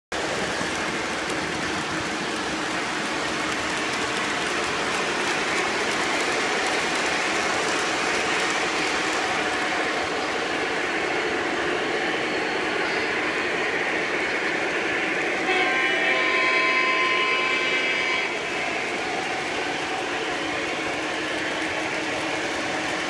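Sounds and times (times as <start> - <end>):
model trains rumbling: 0.1 - 23.0
clicking from rails: 0.2 - 10.7.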